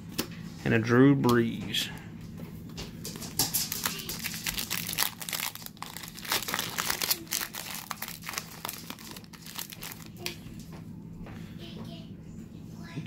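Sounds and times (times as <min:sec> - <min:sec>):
foil wrapper crinkling and tearing: 0:03.2 - 0:10.3.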